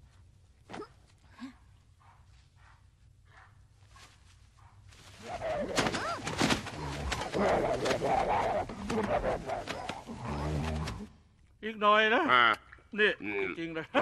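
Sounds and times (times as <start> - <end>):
dogs growling and snarling: 5.2 - 11.2.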